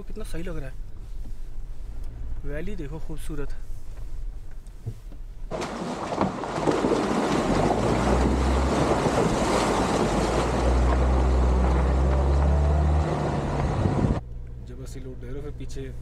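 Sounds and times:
car engine droning: 5.6s - 16.0s
wind noise on microphone: 13.5s - 14.2s.

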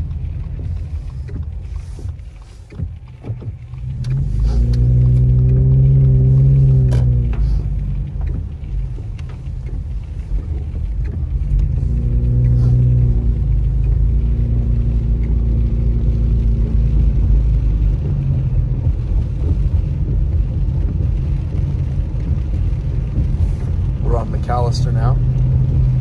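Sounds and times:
car engine and tyres rumble: 0.0s - 26.0s.

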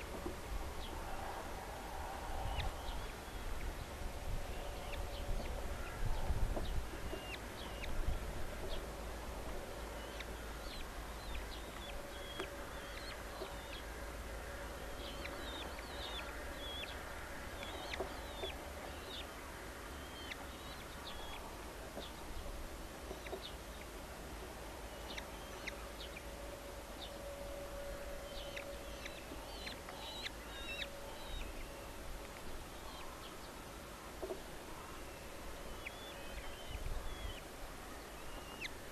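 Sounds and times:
falcon chicks begging calls: 20.0s - 21.4s.

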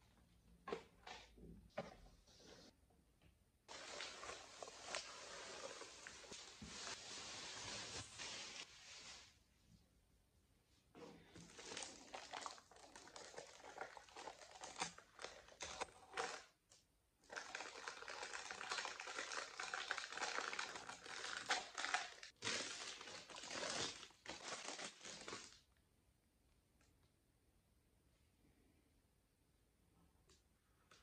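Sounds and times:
plastic packaging crinkling: 17.3s - 25.6s.

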